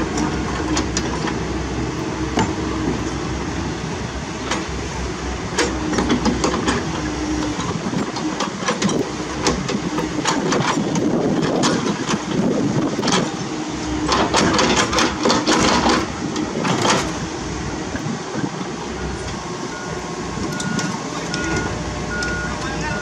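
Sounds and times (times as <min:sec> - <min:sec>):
excavator diesel engine: 0:00.0 - 0:23.0
metallic clanks and knocks: 0:02.3 - 0:03.0, 0:05.6 - 0:13.4, 0:14.0 - 0:17.2.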